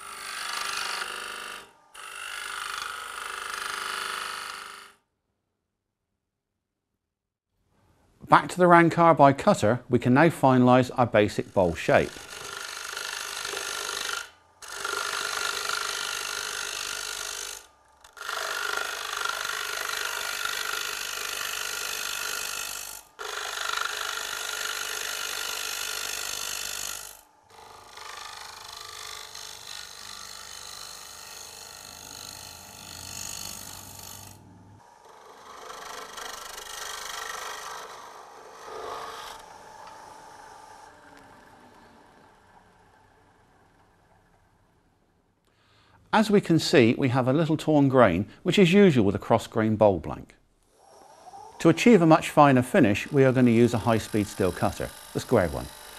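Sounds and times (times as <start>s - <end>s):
lathe cutter scraping wood: 0.0s - 4.9s, 10.5s - 44.3s, 50.8s - 55.9s.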